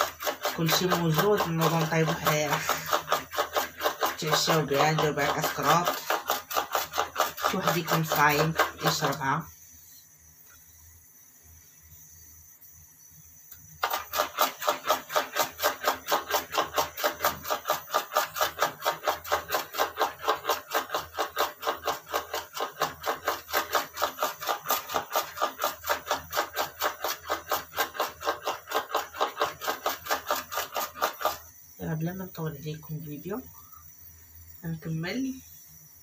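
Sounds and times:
knife chopping herbs on stone: 0:00.0 - 0:09.3, 0:13.8 - 0:31.4.

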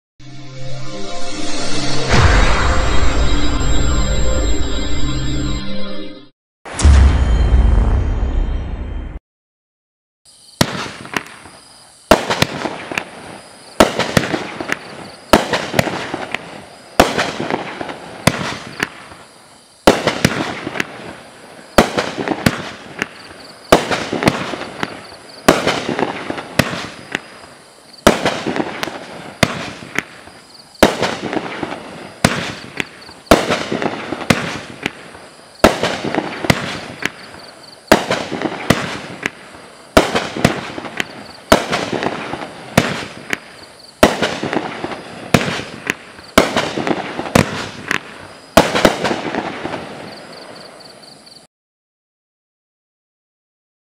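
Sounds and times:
fireworks bangs with crackling tail: 0:10.6 - 0:50.8.

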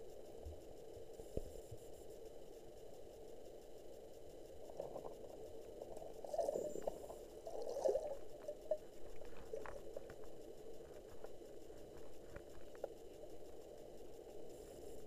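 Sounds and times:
faint ticks: 0:00.0 - 0:15.0
muffled underwater gurgling: 0:04.6 - 0:11.2.

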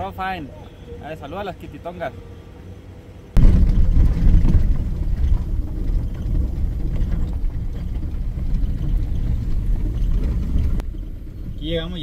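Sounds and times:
vehicle driving on dirt road: 0:03.3 - 0:12.0.

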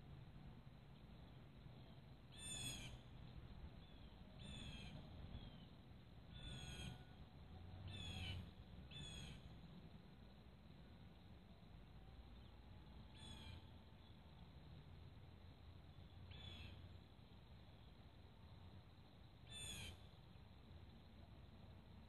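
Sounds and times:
bird calling: 0:02.4 - 0:03.0, 0:03.9 - 0:05.6, 0:06.4 - 0:07.0, 0:07.9 - 0:09.4, 0:19.5 - 0:20.0.

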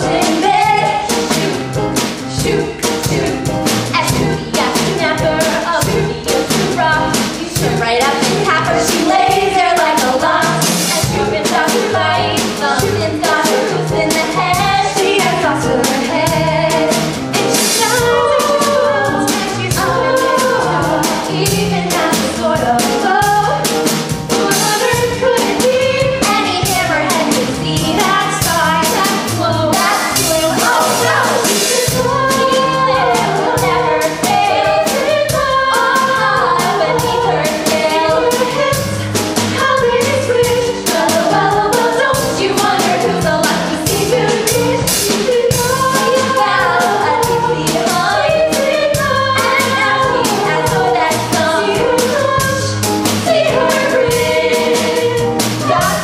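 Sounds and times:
female chorus singing pop tune: 0:00.0 - 0:56.0
accompaniment with steady beat: 0:15.9 - 0:56.0.

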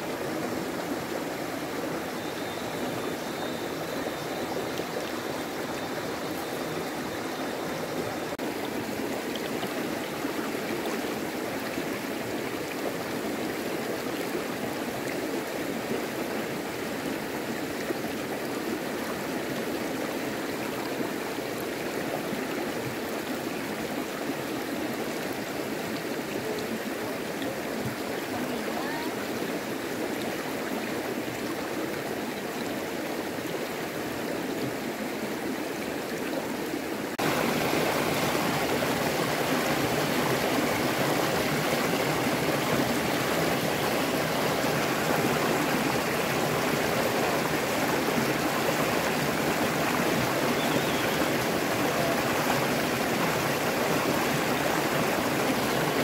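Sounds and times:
running water rushing: 0:00.0 - 0:56.0.

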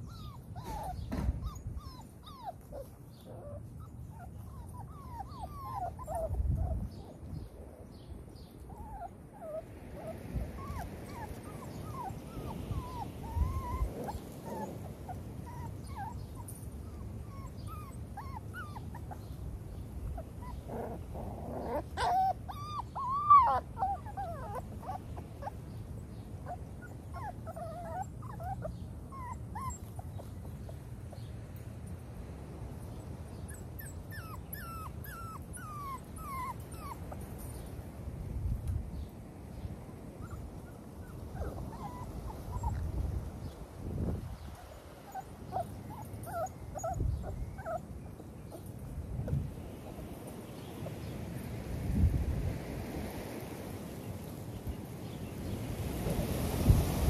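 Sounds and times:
puppies whining: 0:00.0 - 0:07.9, 0:08.5 - 0:25.6, 0:26.4 - 0:31.2, 0:33.4 - 0:37.7, 0:40.2 - 0:42.9, 0:44.4 - 0:47.9.

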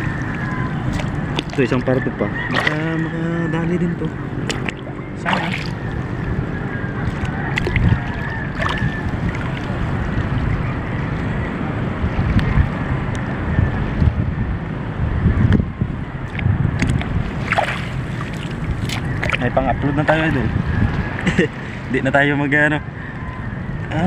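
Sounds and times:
water lapping and sloshing: 0:00.0 - 0:03.2, 0:03.8 - 0:10.9, 0:16.2 - 0:21.9
wind buffeting microphone: 0:00.0 - 0:24.0.

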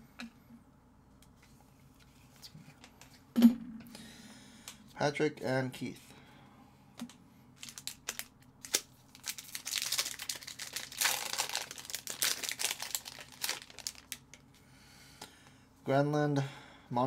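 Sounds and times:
foil wrapper tearing and crinkling: 0:07.6 - 0:14.4.

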